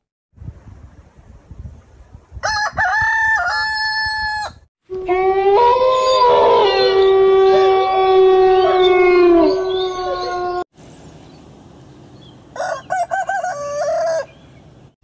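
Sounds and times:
rooster crowing: 0:02.4 - 0:10.4, 0:12.6 - 0:14.4.

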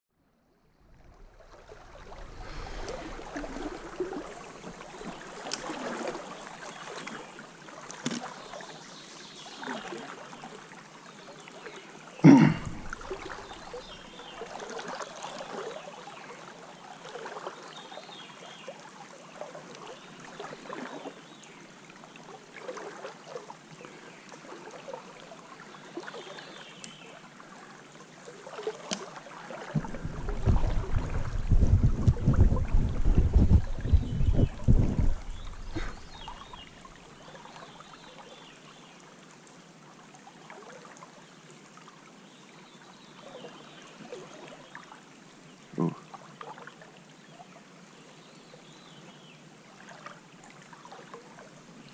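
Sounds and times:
stream water flowing: 0:00.6 - 0:51.9
small splashes: 0:01.0 - 0:08.8, 0:12.4 - 0:15.8, 0:28.3 - 0:37.2.

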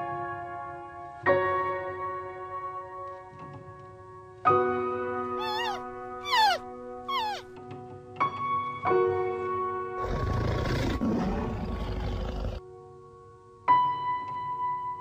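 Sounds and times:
lion roaring: 0:10.0 - 0:12.6.

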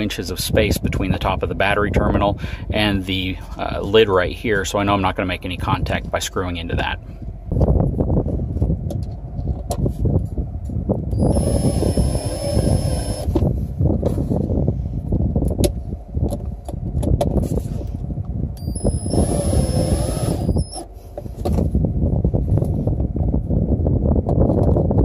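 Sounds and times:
low rumble: 0:00.3 - 0:25.0
drill motor whining: 0:11.1 - 0:13.4, 0:18.6 - 0:20.9.

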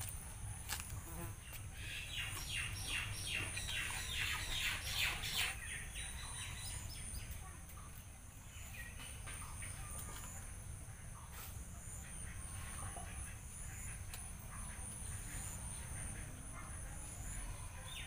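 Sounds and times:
birds chirping: 0:01.4 - 0:10.6.

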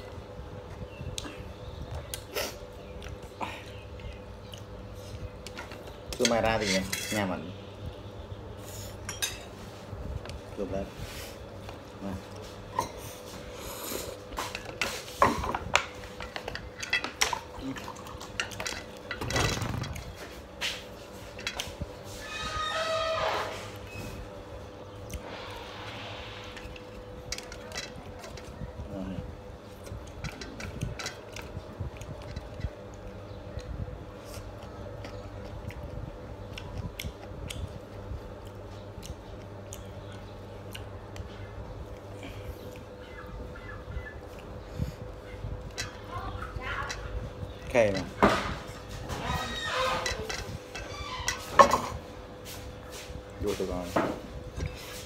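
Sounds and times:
low hum: 0:11.3 - 0:53.3
person chewing food: 0:34.2 - 0:43.5, 0:44.1 - 0:45.7.

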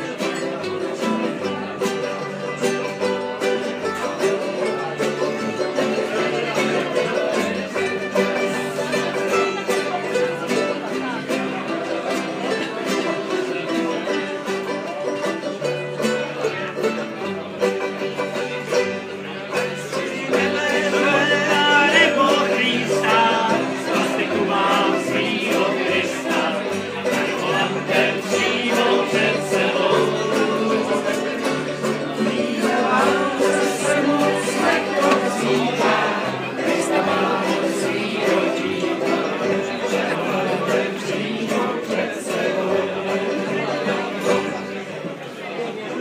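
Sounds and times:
acoustic guitars: 0:00.0 - 0:46.0
banjo: 0:00.0 - 0:46.0
voices singing together: 0:19.6 - 0:44.7.

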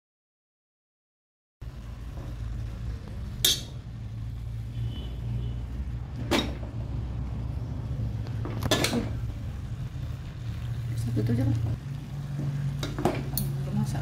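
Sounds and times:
cutlery clinking on pot and plate: 0:03.4 - 0:03.7, 0:06.3 - 0:06.6, 0:08.6 - 0:09.1.

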